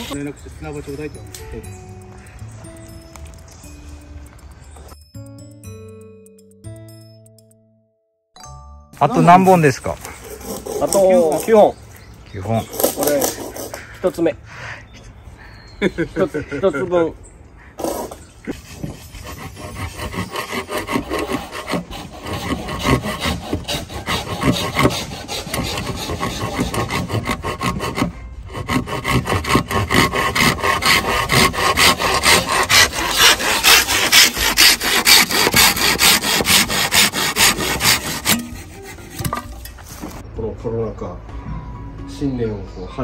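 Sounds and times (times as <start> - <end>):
hand saw cutting bamboo: 9.5 - 11.8, 12.6 - 13.8, 17.8 - 40.2.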